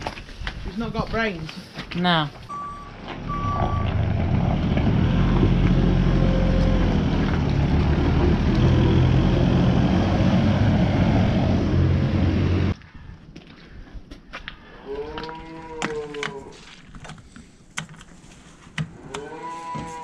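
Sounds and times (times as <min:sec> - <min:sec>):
diesel loader engine under load: 0:02.5 - 0:12.8.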